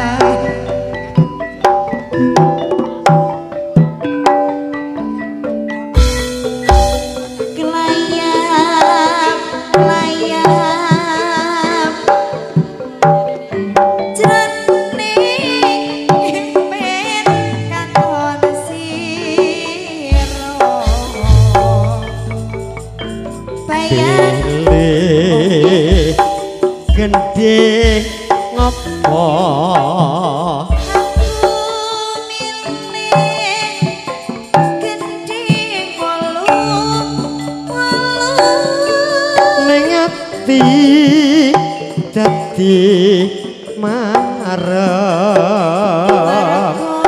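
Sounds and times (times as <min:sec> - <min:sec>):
woman singing into microphone: 0:00.0 - 0:01.3, 0:07.4 - 0:22.2, 0:23.7 - 0:26.2, 0:26.9 - 0:47.0
band playing instrumental music: 0:00.0 - 0:47.0
melody with wavering vibrato: 0:00.0 - 0:47.0
hand drum strokes: 0:06.0 - 0:47.0
sustained pitched accompaniment: 0:15.5 - 0:31.8.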